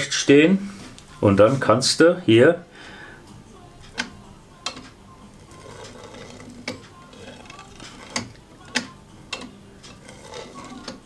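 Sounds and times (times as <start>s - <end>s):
faint rubbing: 5.3s - 8.8s, 9.9s - 11.0s.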